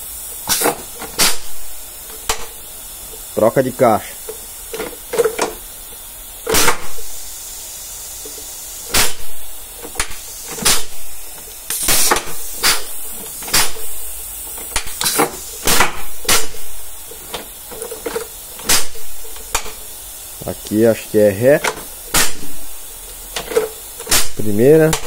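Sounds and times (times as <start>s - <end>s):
compressed air hissing: 0.0s - 25.0s.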